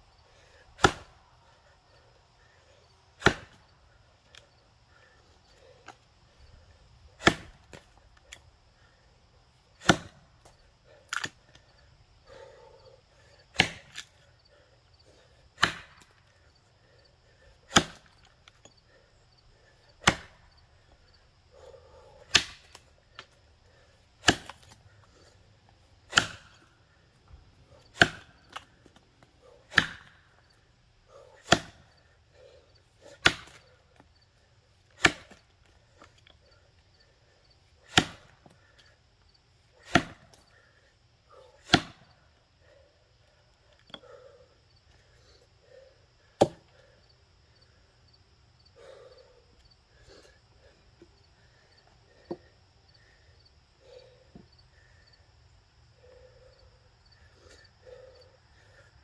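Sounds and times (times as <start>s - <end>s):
axe chopping log: 0.8s - 1.2s, 3.2s - 3.6s, 7.2s - 7.8s, 9.8s - 11.4s, 13.5s - 14.1s, 15.6s - 16.2s, 17.7s - 18.2s, 20.0s - 20.4s, 22.3s - 22.8s, 24.2s - 24.8s, 26.1s - 26.7s, 27.9s - 28.7s, 29.7s - 30.2s, 31.4s - 31.9s, 33.2s - 33.6s, 35.0s - 35.4s, 37.8s - 38.5s, 39.8s - 40.4s, 41.6s - 42.1s, 46.4s - 46.7s.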